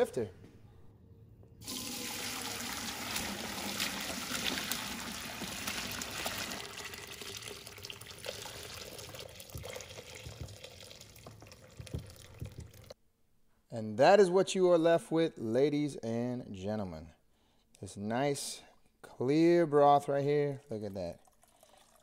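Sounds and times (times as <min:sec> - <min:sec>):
broth pouring through strainer: 0:01.6 - 0:12.9, 0:21.2 - 0:22.0.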